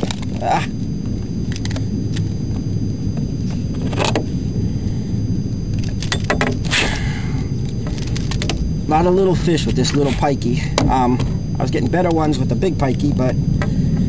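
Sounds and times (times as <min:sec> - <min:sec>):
low rumble: 0:00.0 - 0:14.0.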